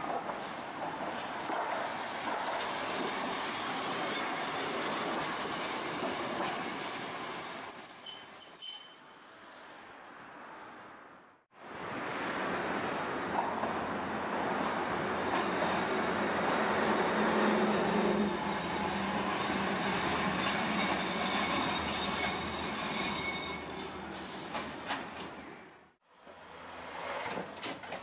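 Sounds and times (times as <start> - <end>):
streetcar running on rails: 0.0 - 10.9, 11.7 - 27.9
steel wheels squealing: 2.6 - 9.6, 18.0 - 24.0.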